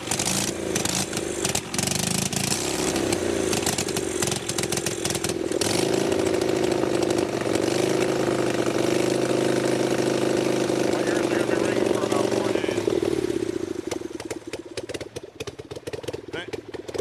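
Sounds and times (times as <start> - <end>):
unmuffled motorcycle engine revving: 0.0 - 17.0.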